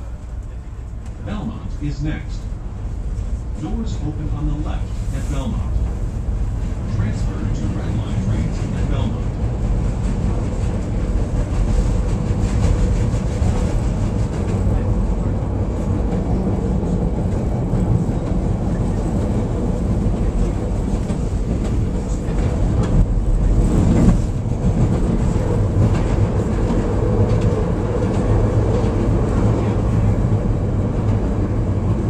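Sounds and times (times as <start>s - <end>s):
train wheels and motors rumbling: 0.0s - 32.0s.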